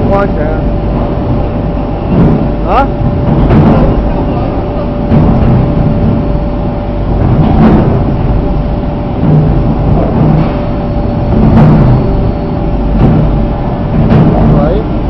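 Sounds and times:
machine rumbling: 0.0 - 15.0
thin constant hum: 0.0 - 15.0.

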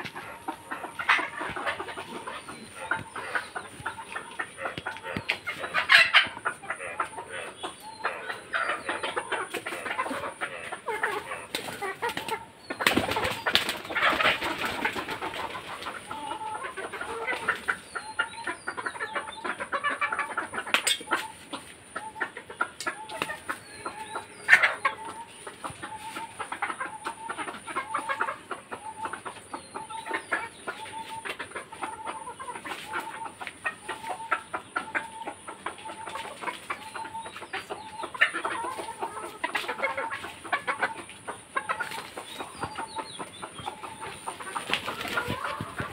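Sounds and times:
scratching and pecking: 0.0 - 17.7, 30.3 - 45.9
hens clucking: 0.0 - 45.9
wing flapping: 12.8 - 15.0, 44.5 - 45.9.

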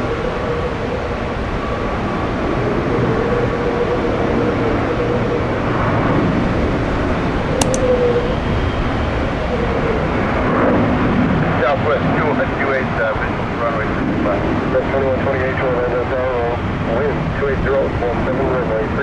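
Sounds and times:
sharp clicks: 7.6 - 7.9.

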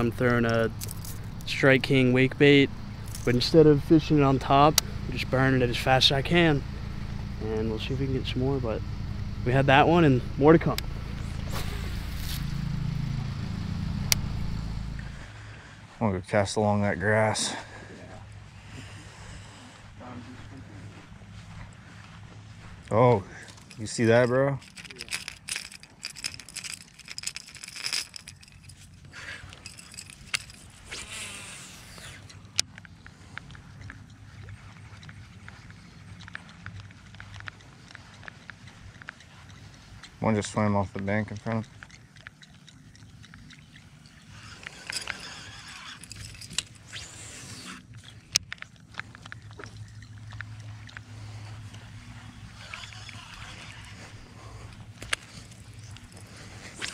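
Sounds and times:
fishing lure rattling: 0.0 - 7.6, 23.3 - 56.9
fishing reel spool whirring: 0.0 - 15.7, 23.5 - 56.9
low steady hum: 0.0 - 56.9.

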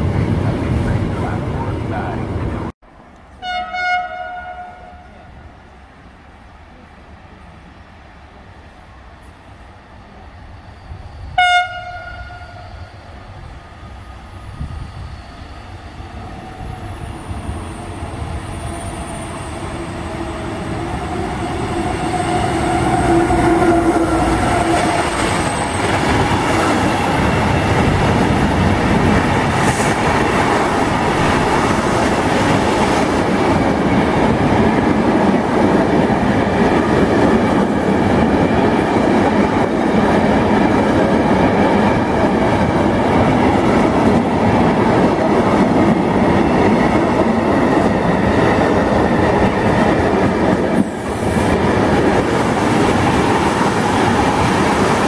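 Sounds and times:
freight train rumbling on rails: 0.0 - 3.4, 4.0 - 55.0
train horn blast: 3.4 - 5.4, 11.4 - 12.8, 21.8 - 25.0.

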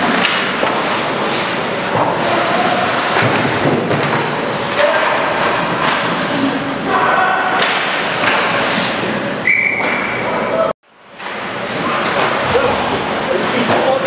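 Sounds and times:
skating noise: 0.0 - 10.7
puck and sticks thudding on boards: 0.1 - 6.2, 7.5 - 8.9, 11.2 - 12.7
players shouting: 6.8 - 8.0.

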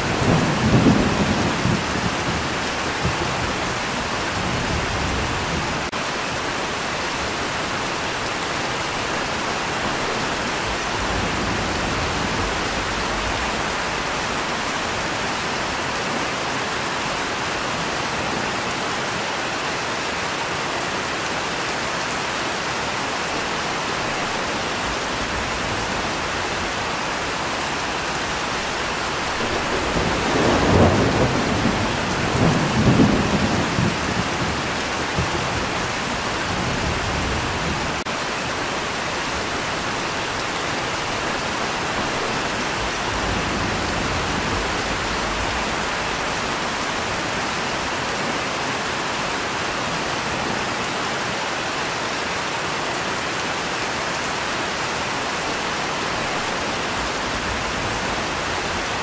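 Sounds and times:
rolling thunder: 0.0 - 5.9, 9.8 - 15.3, 27.8 - 38.0
steady rain hiss: 0.0 - 59.0.

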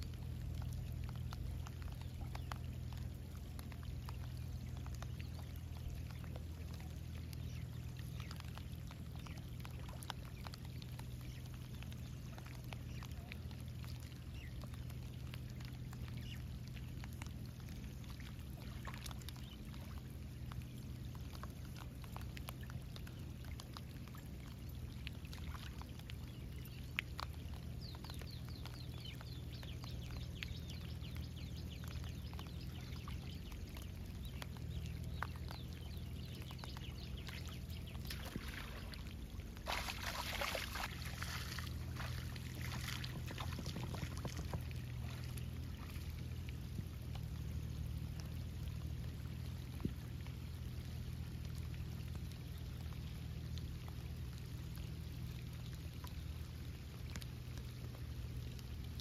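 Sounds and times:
river water lapping and trickling: 0.0 - 59.0
small ticks: 0.0 - 59.0
steady low hum: 0.0 - 59.0
loud water splash: 39.6 - 44.4.

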